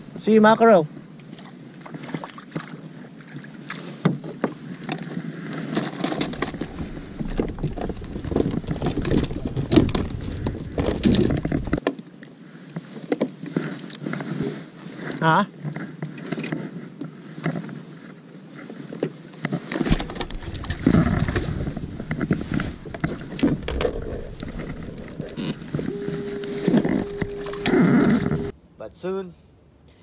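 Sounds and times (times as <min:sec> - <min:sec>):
low wind rumble: 0:06.2 - 0:11.8, 0:19.9 - 0:28.6.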